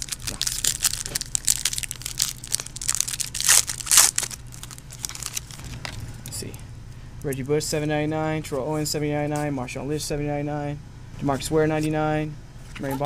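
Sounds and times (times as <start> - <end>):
foil wrapper crinkling: 0.0 - 6.0.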